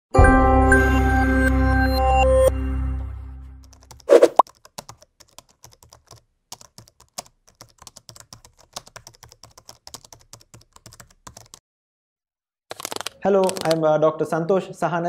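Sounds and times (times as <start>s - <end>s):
typing on computer keyboard: 3.7s - 11.6s, 12.7s - 13.8s.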